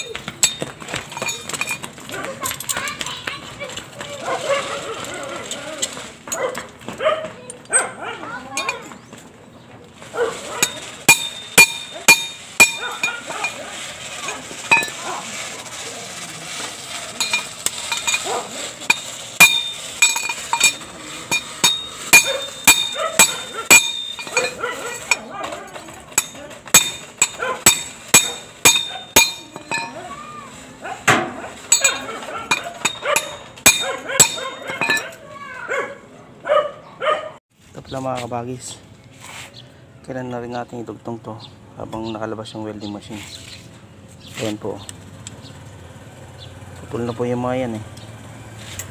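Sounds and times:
hammer striking metal: 10.6s - 13.2s, 18.9s - 25.3s, 26.1s - 30.0s, 31.1s - 35.2s.

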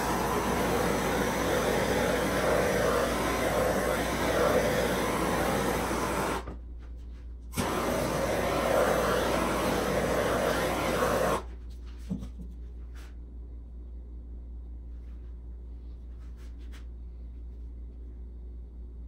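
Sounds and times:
torch flame hissing: 0.0s - 6.5s, 7.6s - 11.5s.

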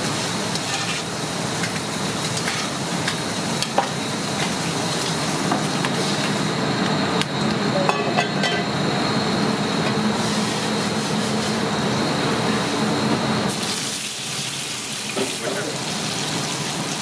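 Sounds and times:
commercial kitchen noise: 0.0s - 17.0s
utensils and pans clinking: 0.5s - 4.6s, 7.8s - 8.8s.

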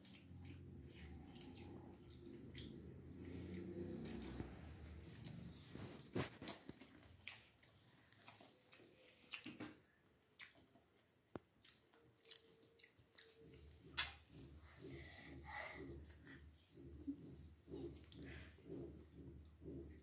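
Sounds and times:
chewing and crunching: 0.0s - 15.0s, 15.8s - 20.0s.

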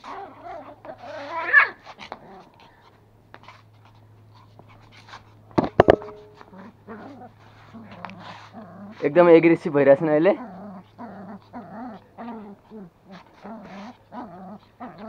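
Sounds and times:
puppies whining and yipping: 0.0s - 2.6s.

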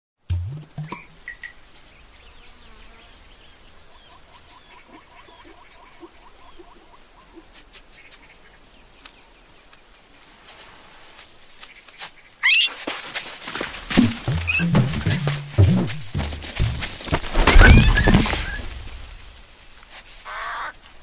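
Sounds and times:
insects: 0.8s - 21.0s
chirping trill: 14.2s - 16.8s
loud rising squeak: 17.4s - 18.7s.

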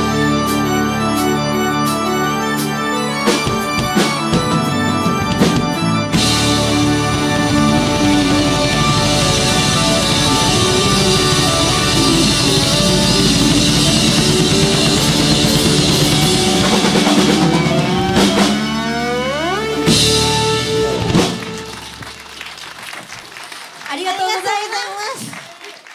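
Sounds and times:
rock band playing loudly: 0.0s - 22.4s
busy drumming: 0.0s - 22.5s
upward pitch sweep: 0.0s - 22.6s.

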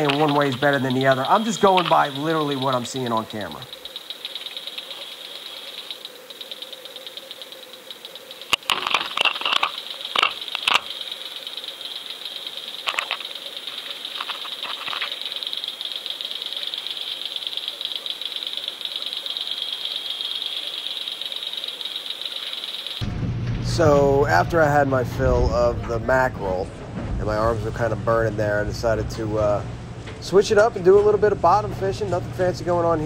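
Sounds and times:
high-pitched buzzing rattle: 0.0s - 23.1s.

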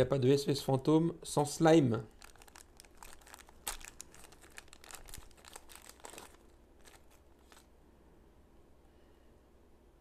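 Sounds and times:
plastic packaging crinkling: 2.1s - 7.7s.

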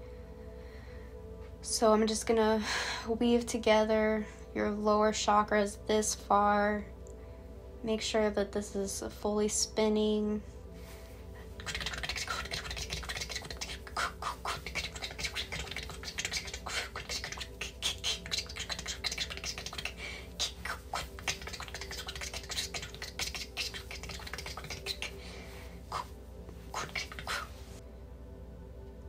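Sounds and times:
faint steady hum: 0.0s - 29.0s
person vocalising: 11.5s - 27.7s
tongue clicks and mouth sounds: 11.6s - 27.8s.

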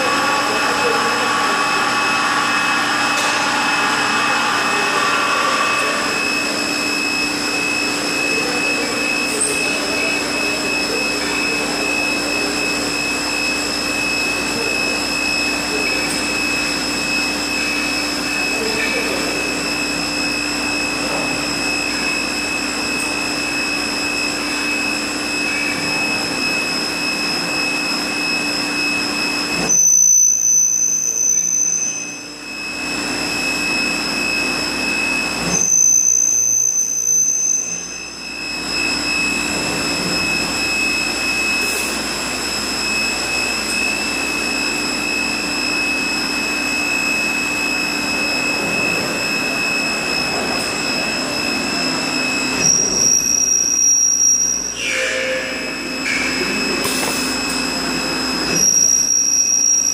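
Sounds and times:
machine mechanical whine: 0.0s - 59.9s
high constant tones: 37.3s - 59.9s.

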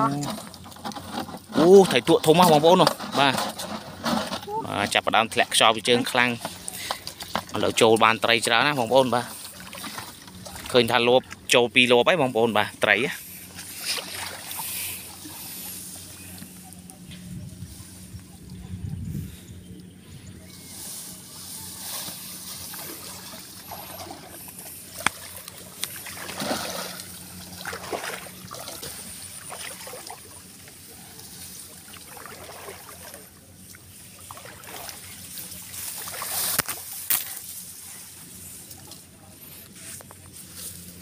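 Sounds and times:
water sloshing: 0.0s - 37.8s
grass rustling: 11.8s - 41.0s.

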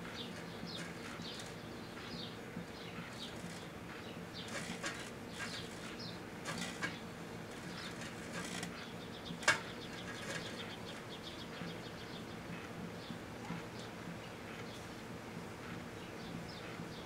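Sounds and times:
disk crackling and popping: 4.4s - 8.8s, 9.4s - 11.0s.

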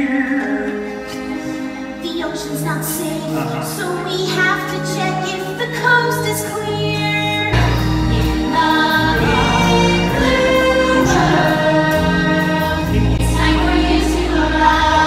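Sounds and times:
orchestral backing track: 0.0s - 15.0s
heavy bass: 7.5s - 15.0s
voices singing together: 7.5s - 15.0s.

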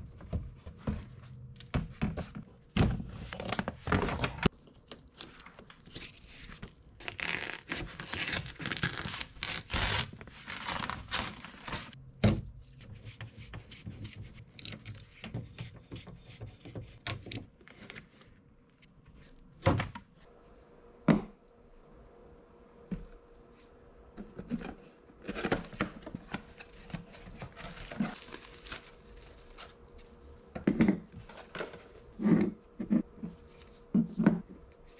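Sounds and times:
plastic sheet crinkling and tearing: 7.0s - 12.0s, 27.7s - 29.6s.

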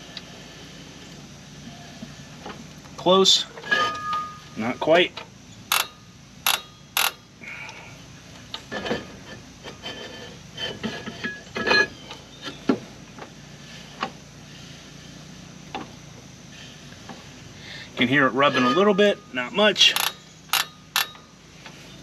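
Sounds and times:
metal knocks and scrapes: 3.5s - 4.6s, 8.6s - 12.8s, 18.4s - 19.3s.

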